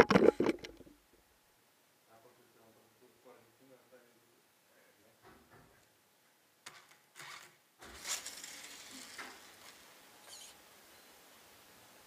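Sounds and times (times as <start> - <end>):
toy car tyres rushing: 6.6 - 10.6.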